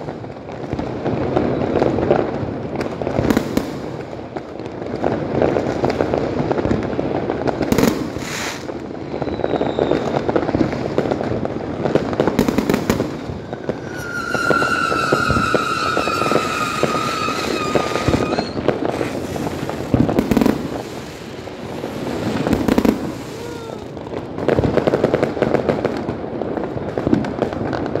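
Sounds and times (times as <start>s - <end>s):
fireworks bangs: 0.0s - 28.0s
fireworks crackling and popping: 0.0s - 28.0s
whistling rockets: 7.7s - 11.2s, 11.8s - 24.0s.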